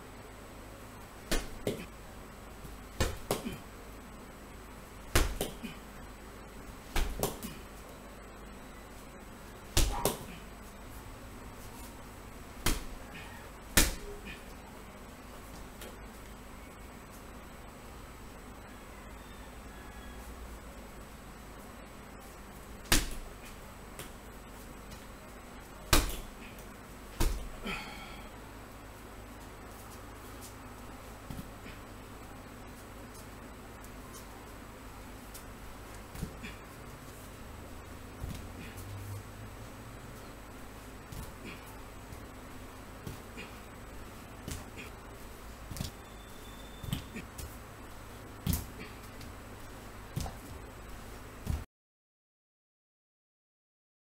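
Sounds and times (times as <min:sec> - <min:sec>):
steady low hum: 0:00.0 - 0:51.7
kicks thudding on punching bag: 0:01.3 - 0:01.9, 0:03.0 - 0:03.6, 0:05.0 - 0:05.6, 0:06.9 - 0:07.5, 0:09.7 - 0:10.3, 0:12.6 - 0:13.0, 0:13.7 - 0:14.1, 0:22.8 - 0:23.3, 0:25.9 - 0:26.4, 0:27.2 - 0:27.6, 0:36.1 - 0:36.4, 0:46.8 - 0:47.5, 0:48.4 - 0:48.8, 0:50.1 - 0:50.6, 0:51.4 - 0:51.7
feet landing on hard floor: 0:45.7 - 0:46.0, 0:46.8 - 0:47.6, 0:48.4 - 0:49.3, 0:50.1 - 0:50.6, 0:51.4 - 0:51.6.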